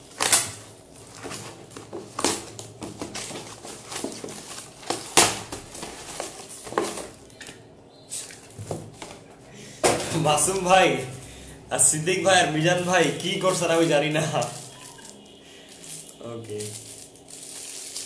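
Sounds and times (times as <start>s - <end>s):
cardboard rustling and scraping: 0.0s - 7.4s.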